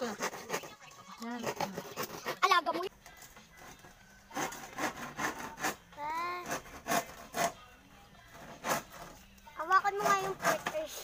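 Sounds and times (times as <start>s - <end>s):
rubbing and scraping strokes: 0.0s - 2.9s, 3.5s - 11.0s.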